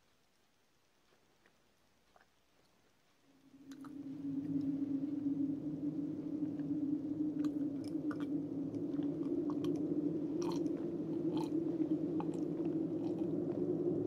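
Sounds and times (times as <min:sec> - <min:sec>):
steady low hum: 0:02.9 - 0:14.0
mouth chewing: 0:10.4 - 0:13.3.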